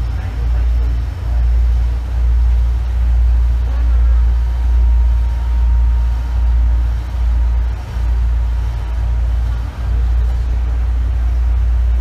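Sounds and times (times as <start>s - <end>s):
train running gear rumble: 0.0s - 12.0s.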